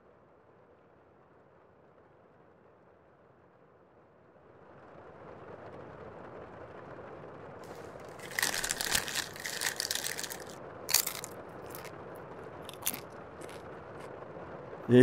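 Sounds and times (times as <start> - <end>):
chip bag crinkling: 7.7 - 11.9, 12.6 - 14.1
chips crunching: 7.7 - 11.9, 12.6 - 14.1.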